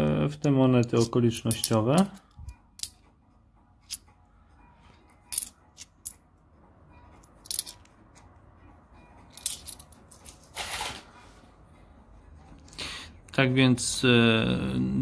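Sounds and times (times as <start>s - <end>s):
coins clinking on wooden table: 5.3s - 6.2s, 7.4s - 7.9s, 9.3s - 10.4s.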